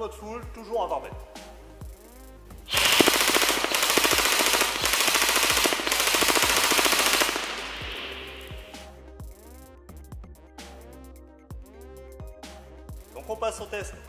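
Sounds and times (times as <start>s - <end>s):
background music: 0.0s - 14.0s
airsoft gun rapid fire: 2.7s - 8.8s.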